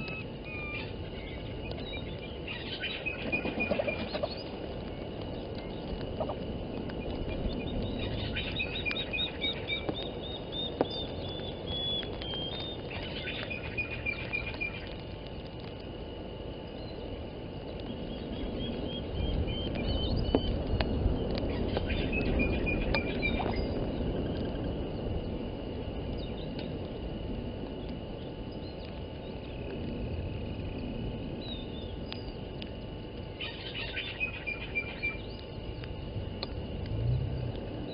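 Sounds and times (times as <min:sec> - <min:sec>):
wild birds calling: 0:00.0 - 0:06.4, 0:07.4 - 0:15.1, 0:33.2 - 0:35.6
wind rumbling on microphone: 0:00.0 - 0:37.9.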